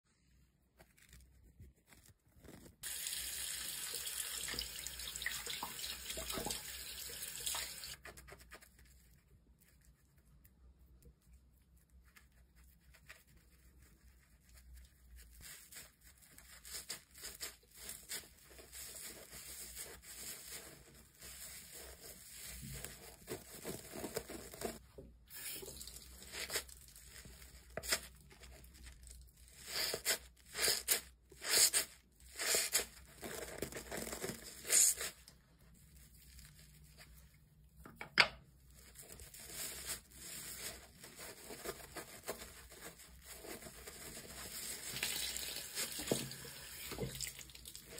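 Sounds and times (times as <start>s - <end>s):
wet sponge squishing lather: 11.2s - 37.5s, 38.7s - 47.9s.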